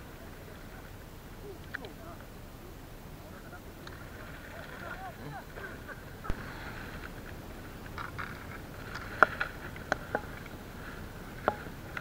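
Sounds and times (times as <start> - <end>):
light rustling: 3.2 - 12.0.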